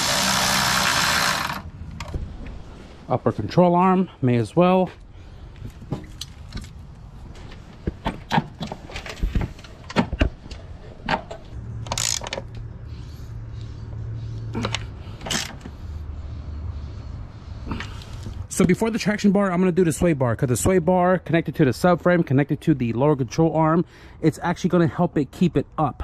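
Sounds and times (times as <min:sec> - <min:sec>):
hand ratchet: 0:00.0 - 0:01.6, 0:11.8 - 0:12.6
metal parts clinking: 0:11.8 - 0:12.5.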